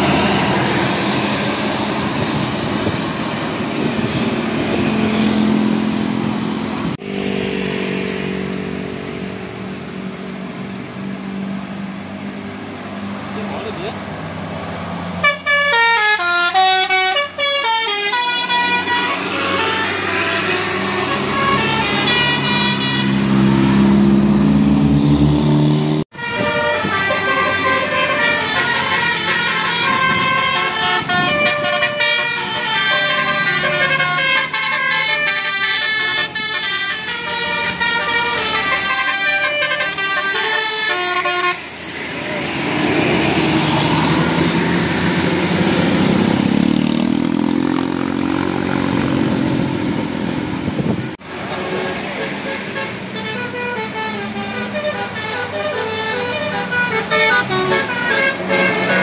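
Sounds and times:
bus engine: 0.0s - 59.0s
multi-tone bus horns playing tunes: 15.2s - 24.0s, 25.8s - 41.9s, 50.7s - 59.0s.

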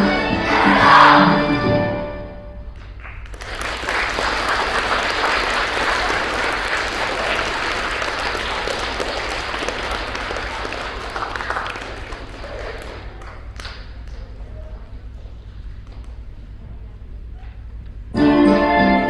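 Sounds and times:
children applauding: 3.0s - 14.0s.

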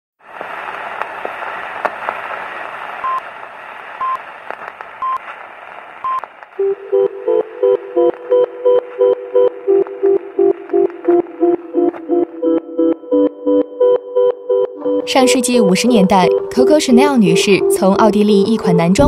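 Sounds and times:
crackling film hiss: 0.2s - 12.4s.

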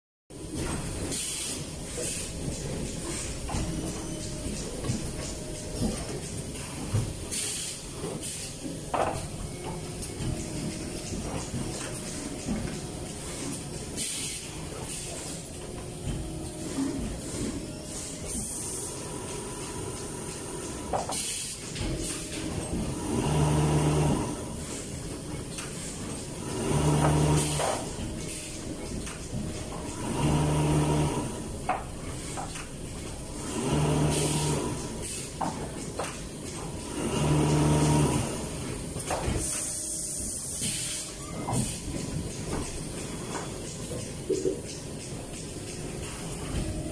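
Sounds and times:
machine clatter: 0.4s - 39.8s, 41.4s - 46.9s
air hisses from cylinders: 1.1s - 2.4s, 7.3s - 8.6s, 14.0s - 15.5s, 21.1s - 22.4s, 39.4s - 41.9s
machine low hum: 21.8s - 40.5s.

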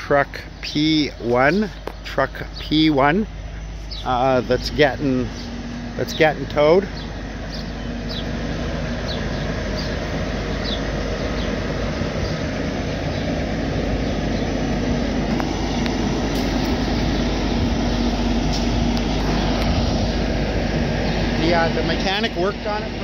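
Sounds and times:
diesel engine idling: 0.0s - 23.0s.

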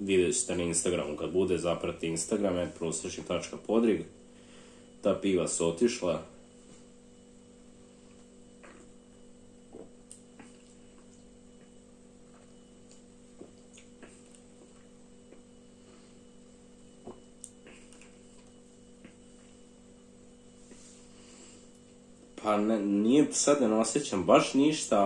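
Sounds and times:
electrical hum: 0.0s - 25.0s
man gulping beer: 8.6s - 9.0s.

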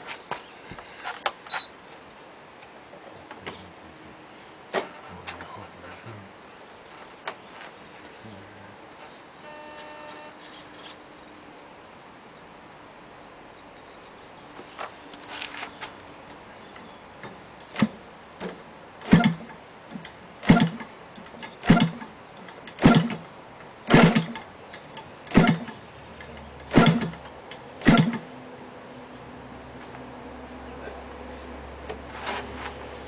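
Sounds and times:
engine pops from propeller flipping: 22.7s - 23.2s, 23.9s - 24.5s, 25.3s - 25.8s, 26.7s - 28.2s.

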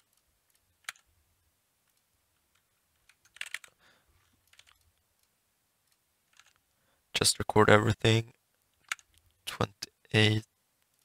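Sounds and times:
keyboard and mouse clicks: 0.0s - 1.1s, 1.9s - 3.8s, 4.4s - 6.6s, 8.8s - 9.4s.

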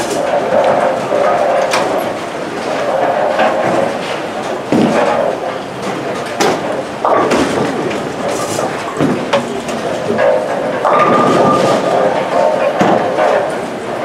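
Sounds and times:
bowling balls rumbling: 0.0s - 14.0s
pins clattering and crashing: 10.9s - 13.1s.

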